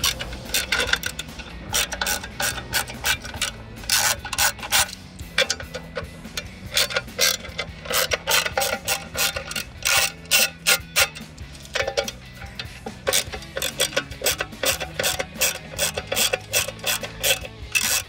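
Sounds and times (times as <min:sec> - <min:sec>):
ratcheting screwdriver clicking: 0:00.0 - 0:18.0.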